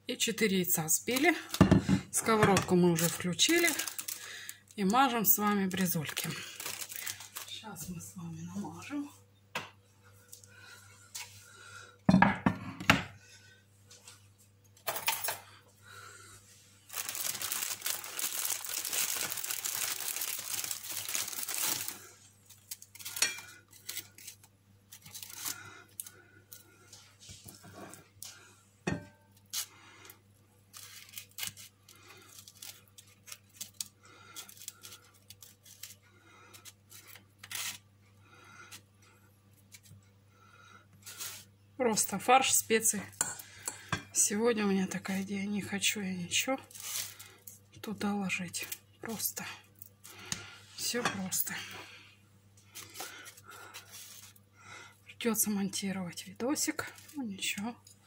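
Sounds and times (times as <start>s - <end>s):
packaging tearing and crinkling: 3.0s - 4.6s, 5.7s - 7.6s, 16.9s - 25.6s, 30.7s - 36.0s, 36.9s - 37.8s, 46.6s - 47.3s.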